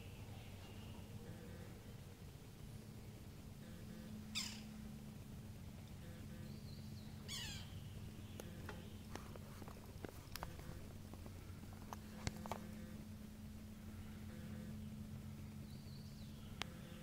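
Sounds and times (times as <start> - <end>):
bird calls: 0.0 - 2.2, 3.6 - 4.9, 5.9 - 9.4, 13.8 - 17.0
low steady hum: 0.0 - 17.0.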